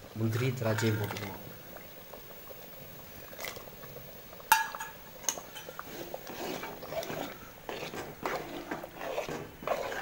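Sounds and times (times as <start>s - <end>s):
stirring and sloshing in a pot: 0.0s - 10.0s
utensil clinking on metal pot: 4.5s - 5.8s.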